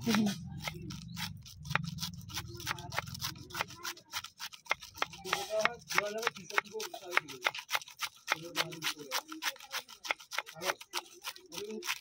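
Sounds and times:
knife shredding cabbage on board: 0:00.0 - 0:12.0.

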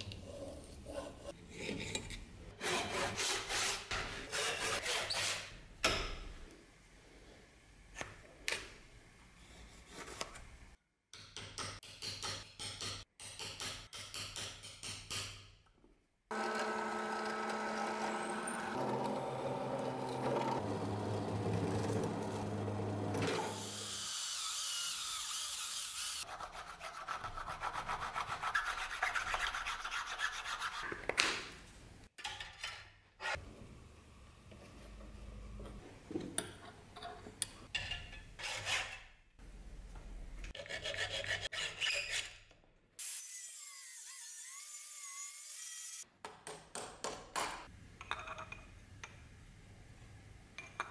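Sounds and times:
hand saw cutting wood: 0:02.6 - 0:05.5.

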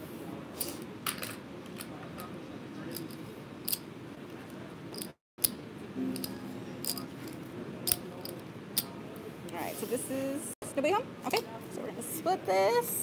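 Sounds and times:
background murmur: 0:06.0 - 0:13.0.

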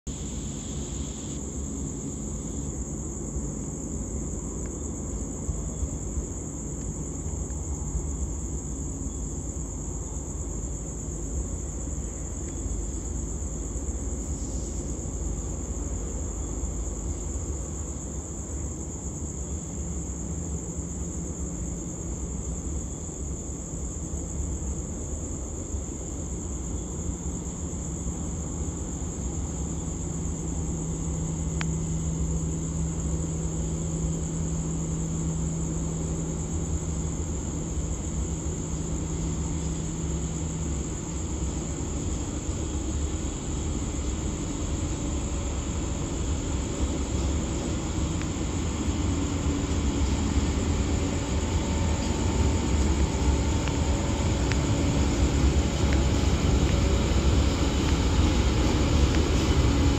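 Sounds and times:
high-pitched whine: 0:00.1 - 0:10.7, 0:28.6 - 0:59.9
diesel locomotive rumble: 0:00.1 - 0:59.9.

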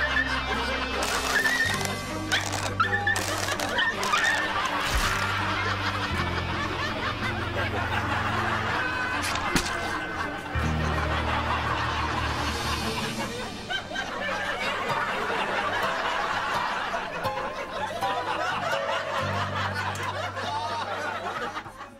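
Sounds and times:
people laughing: 0:00.0 - 0:21.9.

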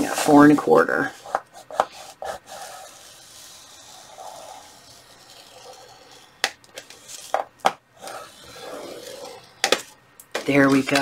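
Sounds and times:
scoring tool scraping folder: 0:00.0 - 0:11.0.

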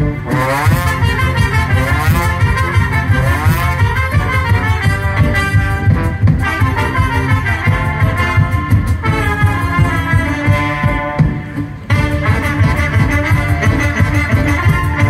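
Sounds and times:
brass band with violins: 0:00.0 - 0:15.0
tuba bass line: 0:00.0 - 0:15.0.

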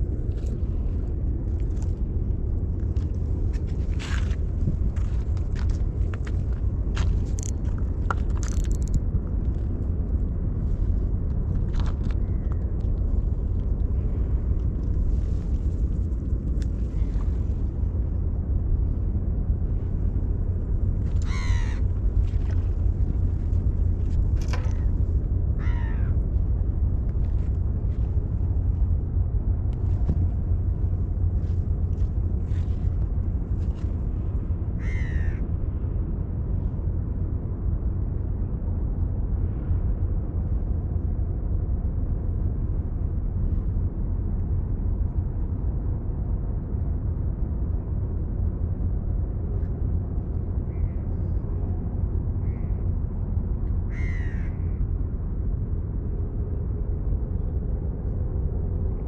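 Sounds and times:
low rumble: 0:00.0 - 0:59.0
crow cawing: 0:21.2 - 0:21.9, 0:25.6 - 0:26.2, 0:34.8 - 0:35.4, 0:53.9 - 0:54.7.

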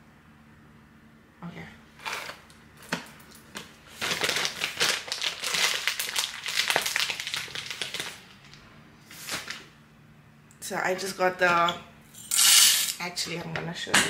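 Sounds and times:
coffee beans grinding: 0:12.2 - 0:13.0.

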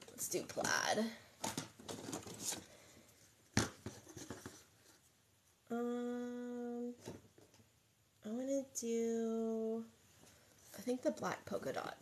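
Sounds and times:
person humming: 0:05.7 - 0:07.0.

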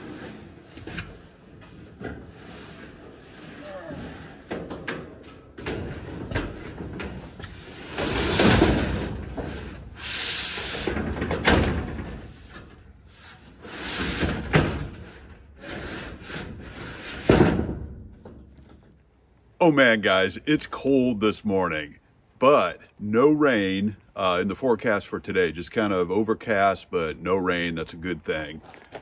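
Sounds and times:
metal roof panel scraping: 0:00.0 - 0:18.4.

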